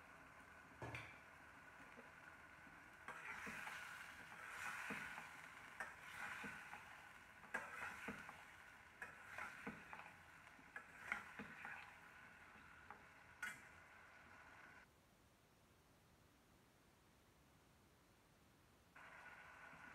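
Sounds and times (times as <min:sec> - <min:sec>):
faint frying sizzle: 0:00.0 - 0:14.9, 0:19.0 - 0:19.9
metal spoon scraping a pan: 0:03.0 - 0:13.8.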